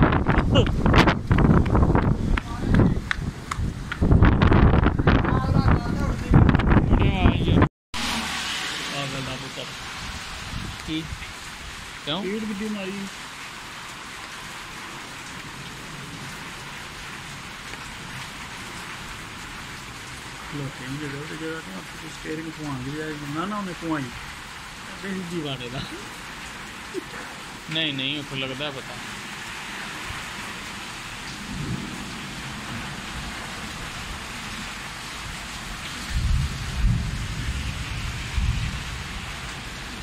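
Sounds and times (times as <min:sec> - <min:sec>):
low thunder rumble: 0:00.0 - 0:07.7, 0:31.3 - 0:40.0
heavy rain pouring: 0:00.0 - 0:40.0.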